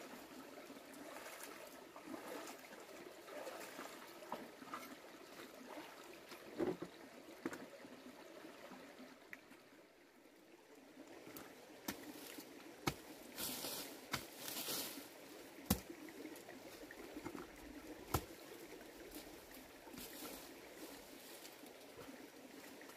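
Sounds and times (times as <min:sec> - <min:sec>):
faint stream trickle: 0:00.0 - 0:22.9
digging tool scraping stony earth: 0:12.9 - 0:15.1.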